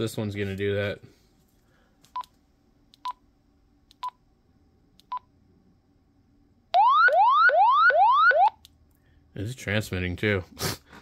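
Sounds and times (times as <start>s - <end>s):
siren alarm rising sweeps: 6.8s - 8.6s.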